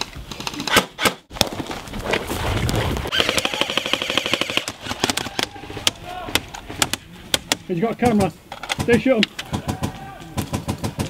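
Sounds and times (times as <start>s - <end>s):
airsoft guns firing: 3.1s - 11.0s.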